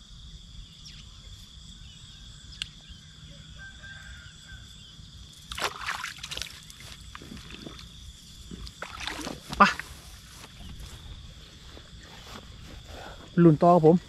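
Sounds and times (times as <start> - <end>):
insects calling: 0.0 - 14.0
hand splashing in shallow water: 5.5 - 7.8, 8.5 - 9.9.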